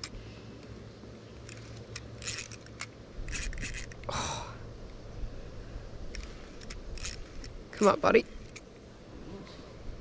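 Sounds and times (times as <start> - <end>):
fishing reel clicking and scraping: 1.5 - 4.1, 6.1 - 8.6.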